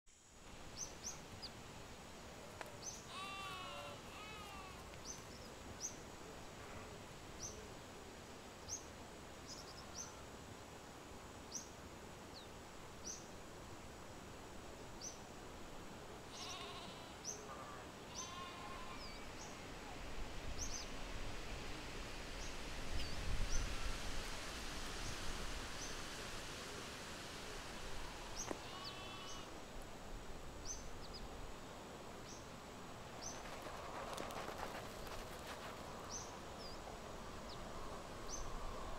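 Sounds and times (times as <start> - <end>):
bleat-like animal call: 3.1 - 4.8, 16.3 - 19.4, 28.6 - 29.5.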